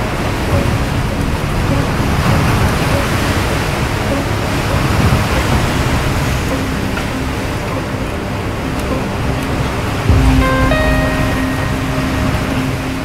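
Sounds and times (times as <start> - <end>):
steady rushing noise: 0.0 - 13.0
low held tones: 10.1 - 13.0.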